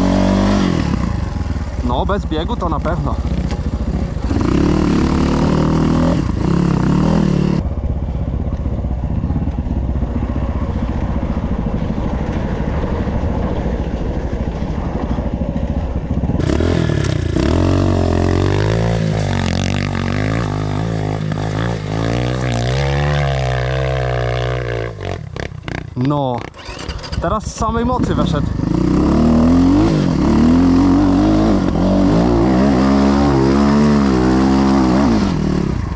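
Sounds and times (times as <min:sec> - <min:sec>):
motorcycle engine revving under load: 0:00.0 - 0:13.0, 0:14.8 - 0:35.9.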